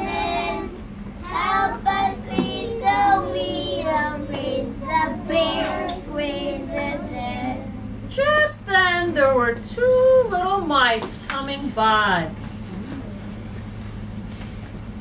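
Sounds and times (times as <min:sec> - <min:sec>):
children singing: 0:00.0 - 0:07.7.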